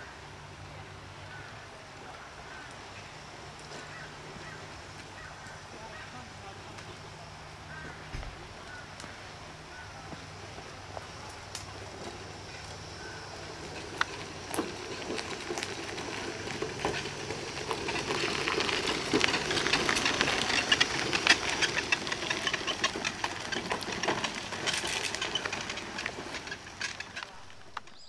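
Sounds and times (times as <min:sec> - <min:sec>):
tyres rolling over grit: 0:09.7 - 0:28.0
electric motors running: 0:10.1 - 0:27.8.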